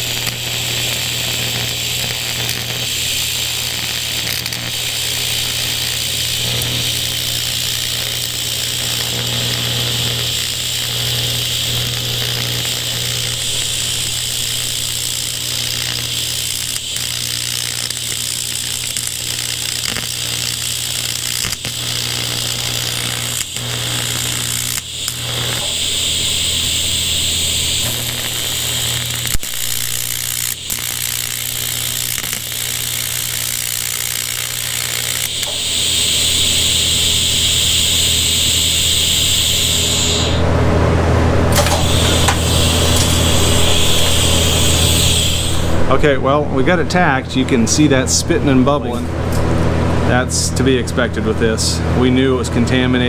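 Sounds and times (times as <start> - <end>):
welding arc buzzing and crackling: 0.0 - 53.0.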